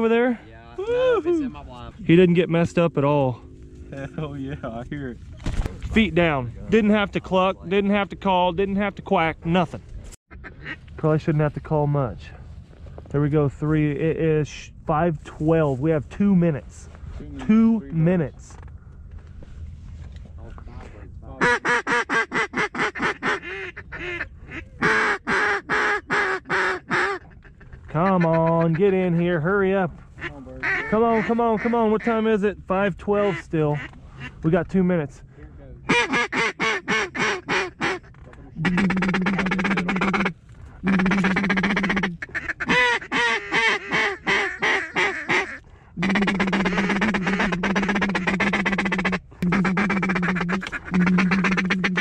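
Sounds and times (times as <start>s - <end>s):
duck call quacks: 10.3s - 10.8s, 21.4s - 28.8s, 30.2s - 32.0s, 35.9s - 52.0s
duck call raspy ticking runs: 10.3s - 11.0s, 21.4s - 28.8s, 30.1s - 32.2s, 33.1s - 34.5s, 35.9s - 52.0s.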